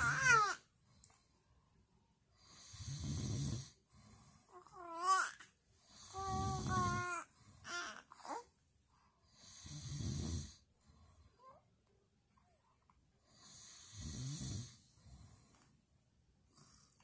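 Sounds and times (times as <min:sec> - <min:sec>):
adult snoring: 0:02.4 - 0:03.8, 0:05.9 - 0:07.8, 0:09.3 - 0:10.7, 0:13.3 - 0:15.4.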